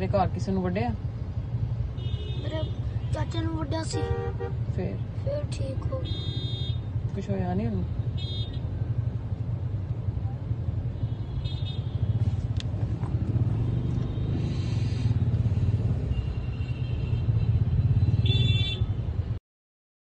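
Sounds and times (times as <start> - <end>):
car interior rumble: 11.8 - 15.9.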